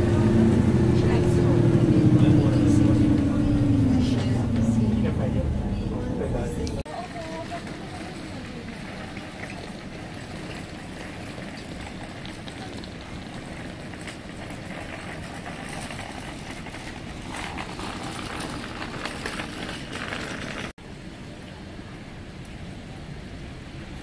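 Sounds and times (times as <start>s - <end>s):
low rumble of traffic: 0.0s - 24.0s.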